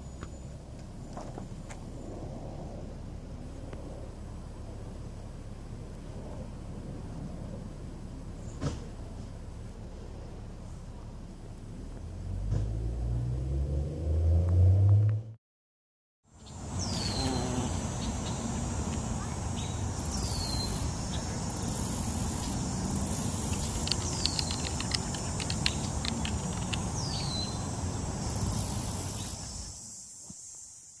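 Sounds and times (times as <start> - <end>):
high insect trill: 16.3 - 31.0
insect buzzing bursts: 16.5 - 26.0, 26.8 - 31.0.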